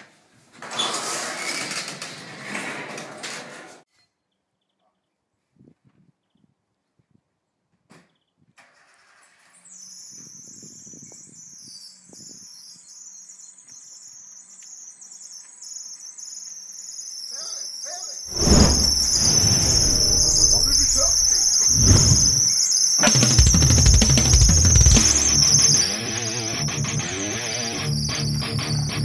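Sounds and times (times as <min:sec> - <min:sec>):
high-pitched electronic whine: 0:18.3 - 0:29.0
rock music with drums and guitar: 0:23.0 - 0:27.4.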